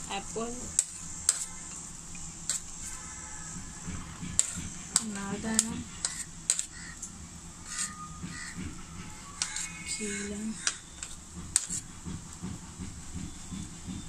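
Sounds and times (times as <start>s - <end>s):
spoon scraping fruit off plate: 0.7s - 3.1s, 4.2s - 7.0s, 7.6s - 8.6s, 9.4s - 11.9s.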